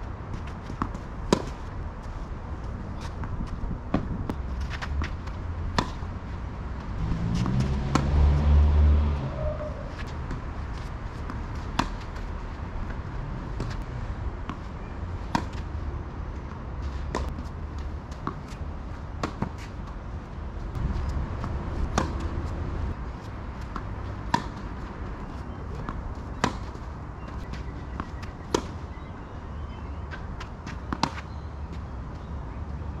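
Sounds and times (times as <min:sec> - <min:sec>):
tennis ball bouncing: 0:00.3 - 0:01.7, 0:02.6 - 0:06.2, 0:06.8 - 0:08.4, 0:09.2 - 0:13.8, 0:14.4 - 0:15.7, 0:16.4 - 0:17.5, 0:19.2 - 0:19.7, 0:20.7 - 0:22.6, 0:23.2 - 0:28.8, 0:30.1 - 0:31.8.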